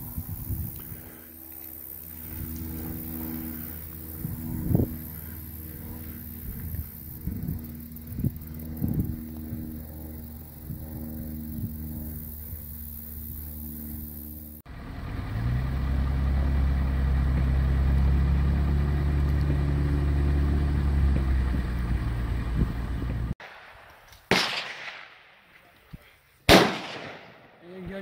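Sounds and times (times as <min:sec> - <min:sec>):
vehicle driving drone: 0:00.0 - 0:23.4
gunshots: 0:23.4 - 0:25.4, 0:26.5 - 0:27.6.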